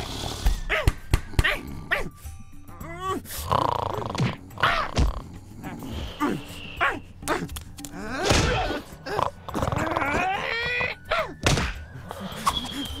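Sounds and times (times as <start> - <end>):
cartoon snoring: 3.3 - 6.4, 8.0 - 10.1.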